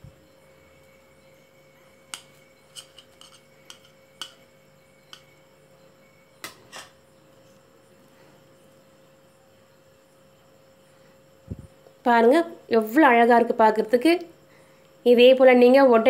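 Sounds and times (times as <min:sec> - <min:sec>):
faint steady hum: 0:00.0 - 0:16.0
metal plate and spoon clinking: 0:02.1 - 0:05.4, 0:06.4 - 0:07.0.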